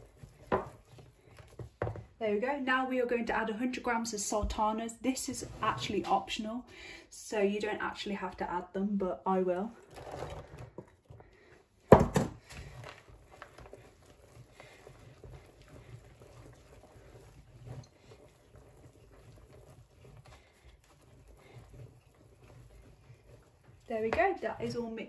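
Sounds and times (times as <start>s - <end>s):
batter squelching and scraping: 0.0s - 6.7s, 7.4s - 25.0s.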